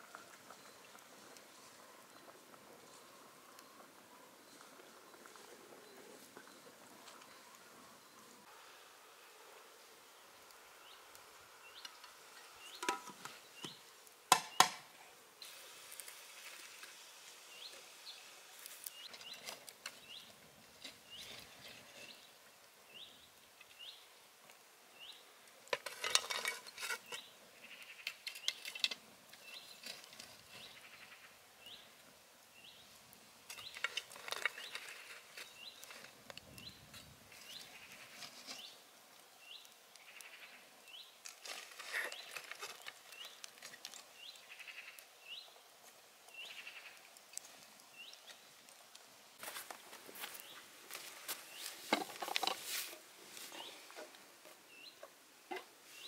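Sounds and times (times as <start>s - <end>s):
bird chirping: 10.8s - 13.9s, 44.1s - 45.6s, 46.3s - 47.0s
metal pot and firewood clattering: 11.8s - 14.9s, 25.6s - 30.8s, 33.4s - 38.8s, 41.2s - 44.2s, 50.9s - 55.7s.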